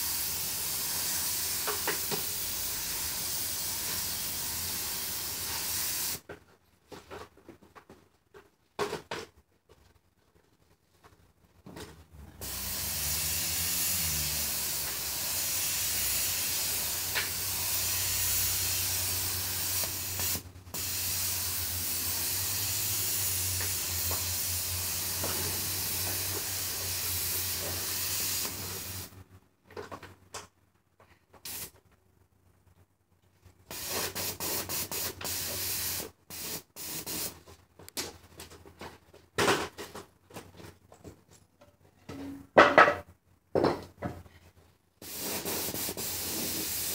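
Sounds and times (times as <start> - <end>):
paint spray gun hissing: 0.0 - 6.2, 12.4 - 29.1, 31.5 - 31.7, 33.7 - 37.3, 45.0 - 46.9.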